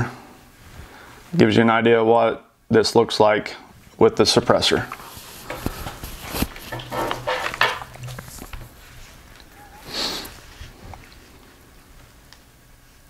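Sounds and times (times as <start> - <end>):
sling and clothing rustling: 3.7 - 13.0
rifle handling clicks and knocks: 5.4 - 8.8.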